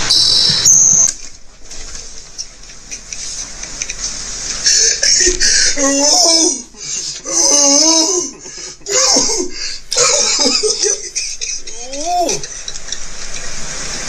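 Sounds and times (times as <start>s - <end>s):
man laughing hard: 4.6s - 13.0s.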